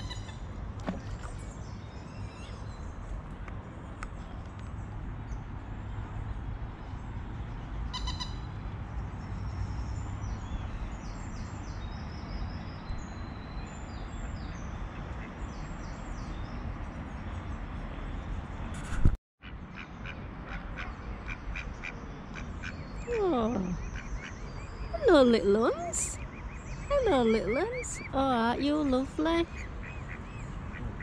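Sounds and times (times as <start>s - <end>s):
birds chirping: 19.8s - 31.0s.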